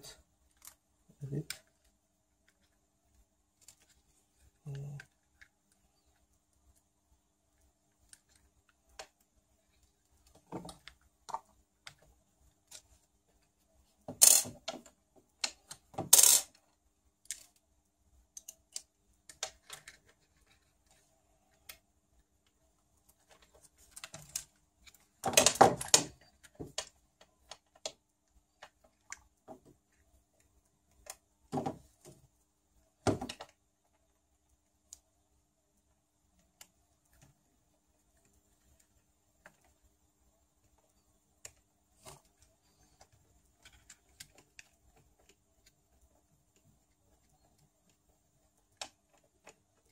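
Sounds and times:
small metal parts clicking: 14.2 - 14.7, 15.4 - 16.6.

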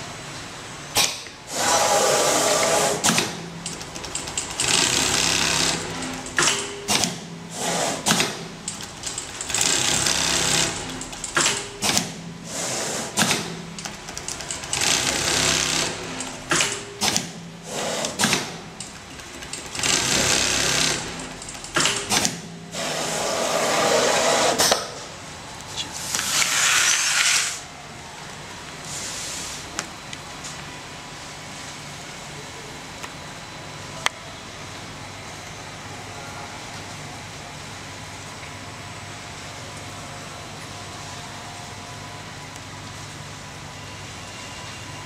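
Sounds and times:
sewing machine stitching: 1.5 - 13.6, 14.2 - 18.6, 19.2 - 24.7.

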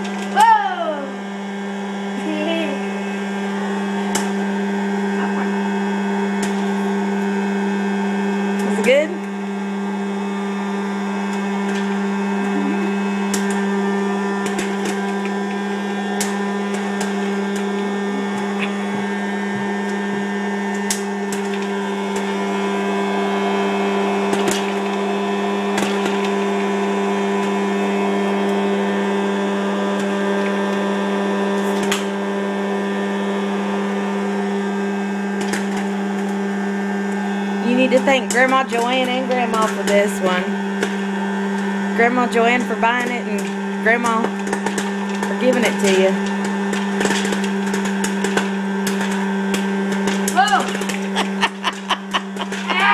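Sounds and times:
popcorn popper fan humming: 0.0 - 52.9
popcorn kernels popping: 6.3 - 6.6, 13.2 - 22.4, 24.2 - 25.0, 25.7 - 27.6, 31.7 - 32.2, 35.3 - 36.6, 40.8 - 41.7, 44.2 - 52.8.

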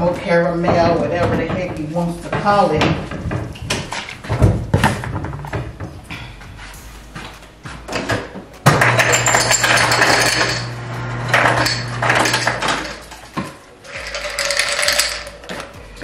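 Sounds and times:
ice dispenser motor hum: 8.8 - 13.0, 13.8 - 15.3
ice cubes clattering into cup: 13.9 - 15.4.

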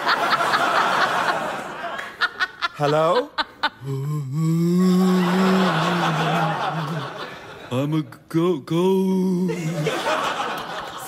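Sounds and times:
audience laughter: 0.0 - 3.8, 5.0 - 7.7, 9.5 - 11.0
man moaning ghostly oooh: 3.8 - 6.9, 8.8 - 9.9.

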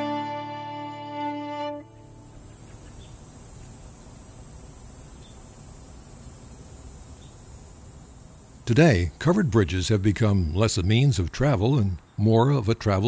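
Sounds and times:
bowed fiddle note: 0.0 - 2.4
low hiss: 0.0 - 13.0
insects shrilling: 1.2 - 11.1.

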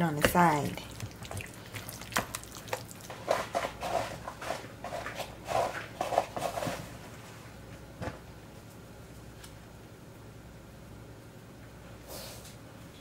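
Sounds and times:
wet squelching of kneaded dough: 0.2 - 4.0.

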